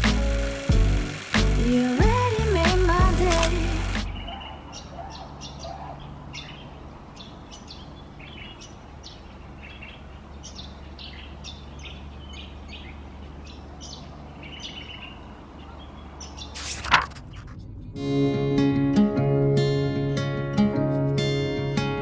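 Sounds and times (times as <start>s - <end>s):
birds chirping: 3.1s - 17.5s
steady low hum: 15.2s - 20.2s
loud whoosh: 16.6s - 19.0s.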